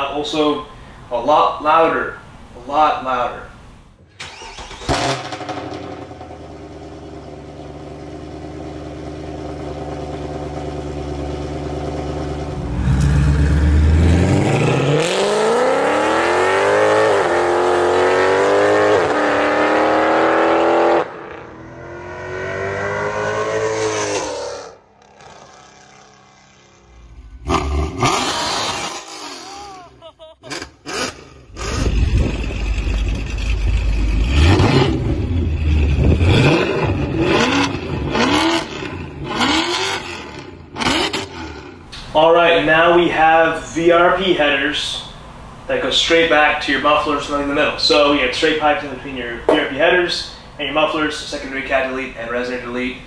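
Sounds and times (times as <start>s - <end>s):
car engine idling and revving: 4.3s - 41.9s.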